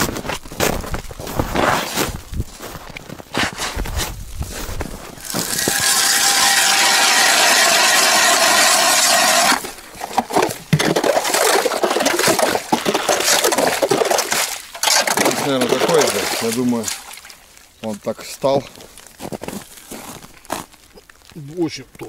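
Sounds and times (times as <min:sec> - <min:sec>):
hand ice auger drilling ice: 0:05.2 - 0:17.1.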